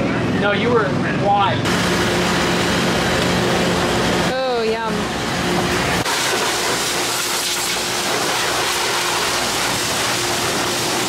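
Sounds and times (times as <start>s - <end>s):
pressure washer spraying: 6.0s - 11.0s.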